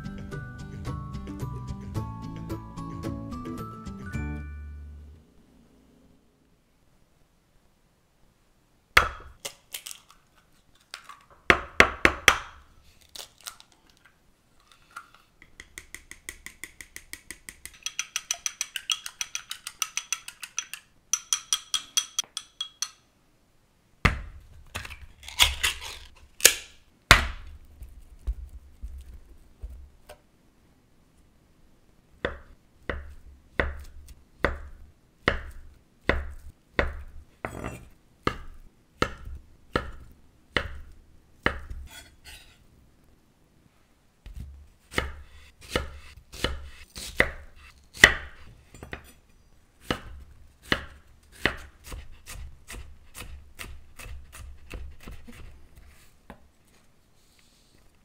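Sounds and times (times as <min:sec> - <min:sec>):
chopsticks beating in ceramic bowl: 0:15.6 - 0:23.0.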